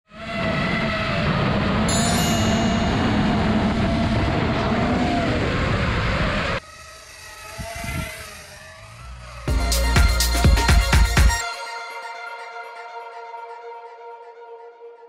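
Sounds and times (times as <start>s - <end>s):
drone motors whining: 0.1s - 11.2s.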